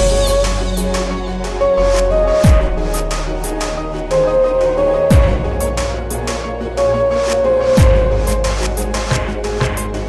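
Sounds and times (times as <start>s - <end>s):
steady hi-hat beat: 0.0s - 3.9s, 7.8s - 10.0s.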